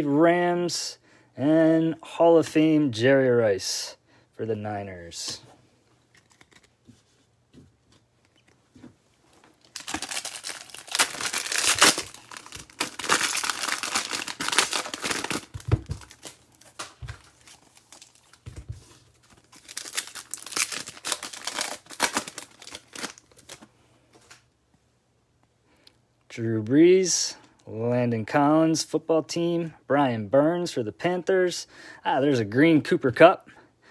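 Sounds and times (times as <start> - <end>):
foil wrapper tearing and crinkling: 9.6 - 18.6, 19.2 - 23.6.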